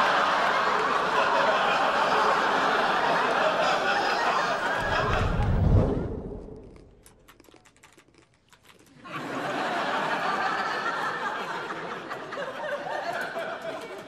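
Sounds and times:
studio audience laughing: 0:00.0 - 0:05.5, 0:09.0 - 0:14.0.

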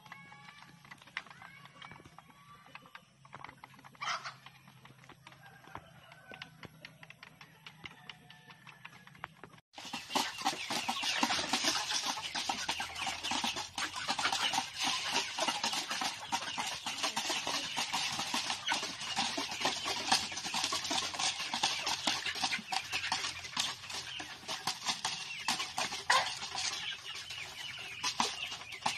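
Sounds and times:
hens clucking: 0:00.0 - 0:28.9.

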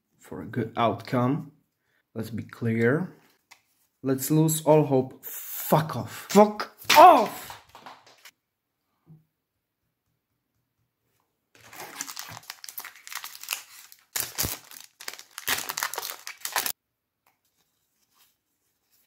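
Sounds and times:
foil wrapper crinkling and tearing: 0:11.6 - 0:16.8.

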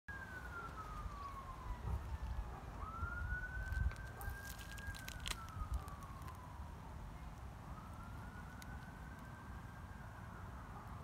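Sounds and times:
distant siren wailing: 0:00.1 - 0:11.0
short crackles: 0:03.6 - 0:06.4.

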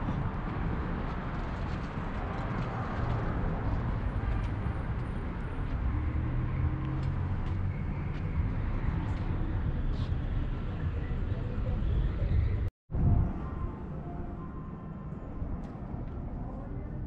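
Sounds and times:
city traffic rumble: 0:00.0 - 0:17.0.

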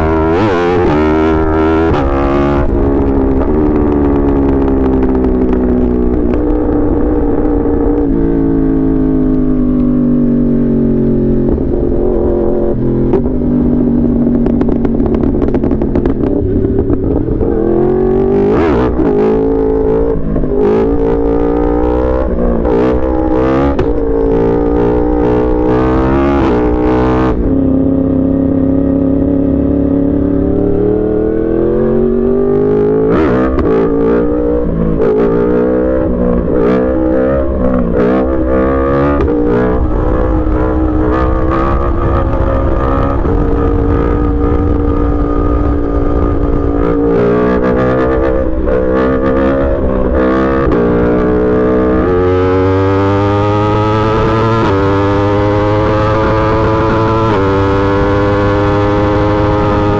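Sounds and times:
motorcycle engine revving: 0:00.0 - 0:59.9
exhaust cracks: 0:13.1 - 0:17.6, 0:37.4 - 0:51.6.

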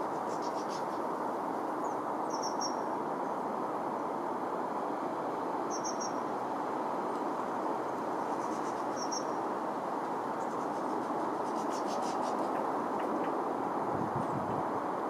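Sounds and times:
steady rushing noise: 0:00.0 - 0:15.0
small birds chirping: 0:01.8 - 0:02.8, 0:05.7 - 0:06.2, 0:08.3 - 0:09.4.

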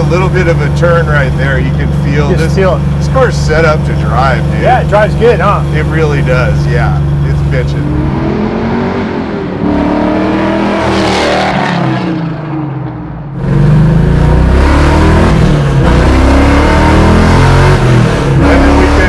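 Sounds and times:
car engine heard from inside cabin: 0:00.0 - 0:10.9
car engine accelerating past: 0:07.7 - 0:19.0.

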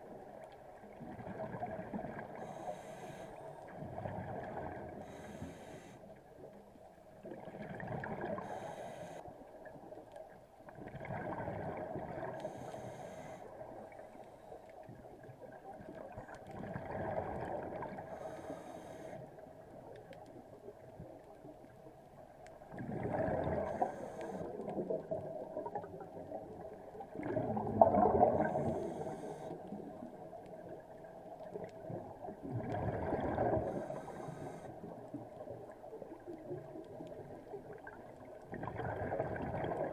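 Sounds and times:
gurgling exhaled bubbles: 0:00.9 - 0:02.6, 0:03.7 - 0:05.2, 0:07.2 - 0:08.6, 0:10.8 - 0:12.6, 0:15.2 - 0:18.3, 0:22.6 - 0:39.9
diver breathing through regulator: 0:02.4 - 0:03.7, 0:05.0 - 0:06.1, 0:08.4 - 0:09.2, 0:12.4 - 0:13.6, 0:18.0 - 0:19.4, 0:23.6 - 0:24.6, 0:28.3 - 0:29.7, 0:33.6 - 0:34.9.

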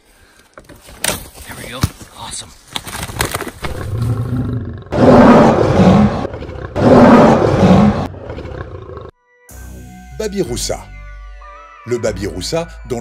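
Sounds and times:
lion roaring: 0:03.7 - 0:09.1.

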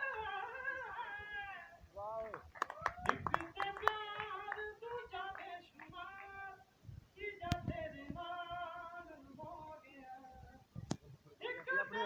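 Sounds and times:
hand claps: 0:02.2 - 0:04.6.

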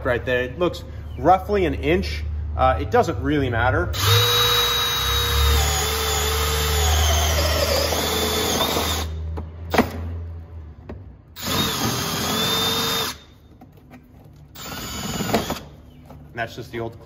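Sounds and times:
cordless drill whining: 0:04.0 - 0:09.2, 0:11.4 - 0:13.3, 0:14.6 - 0:15.8.

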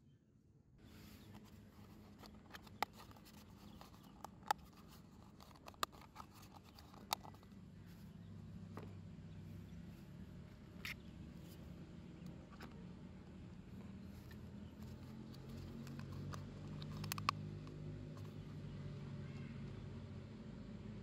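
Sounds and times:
plastic cup snapping: 0:15.8 - 0:17.4.

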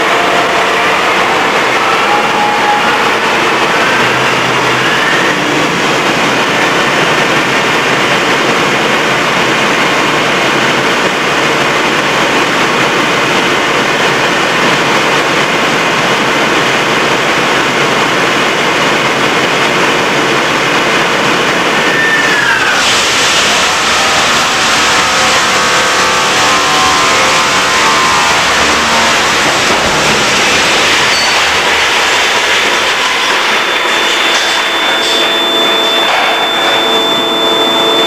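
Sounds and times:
large diesel engine running: 0:00.0 - 0:38.0
faint gliding whine: 0:25.0 - 0:38.0.

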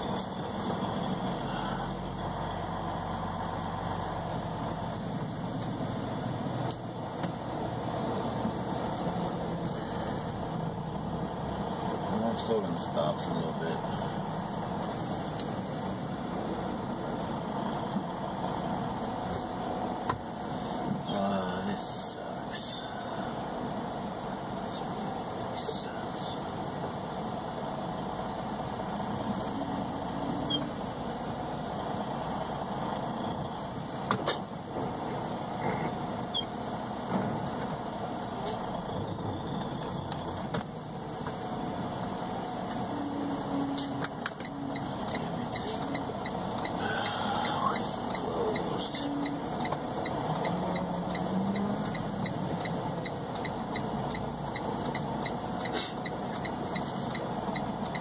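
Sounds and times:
truck engine running: 0:00.0 - 0:58.0
light even ticking: 0:44.0 - 0:58.0.

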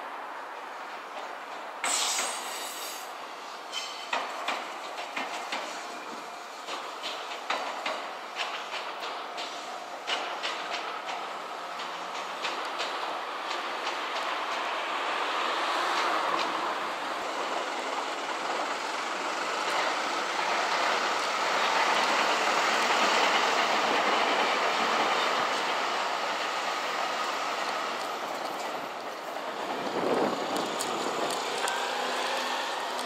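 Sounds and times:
train wheels rumbling on rails: 0:00.0 - 0:33.0.

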